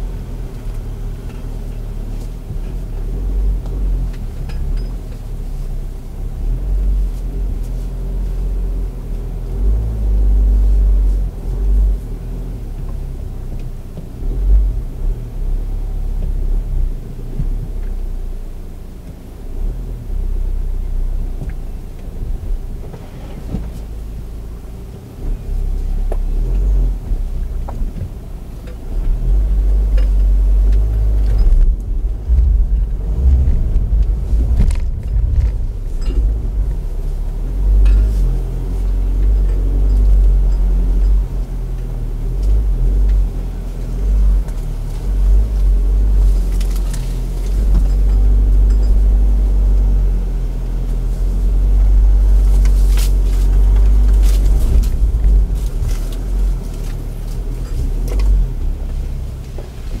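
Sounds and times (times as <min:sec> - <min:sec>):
car rumbling on rough ground: 0:00.0 - 1:00.0.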